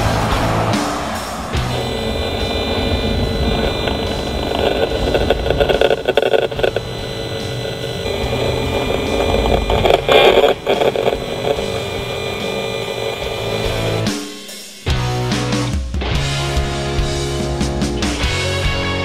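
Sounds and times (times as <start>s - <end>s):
vehicles driving past: 0.0s - 4.4s
steady engine hum: 0.0s - 14.1s.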